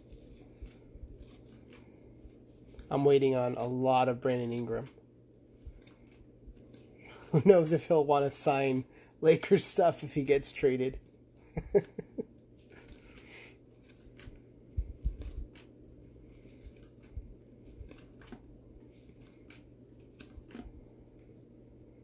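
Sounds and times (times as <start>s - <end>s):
cards sliding and clicking: 0.1s - 2.9s, 12.8s - 14.5s, 15.1s - 20.8s.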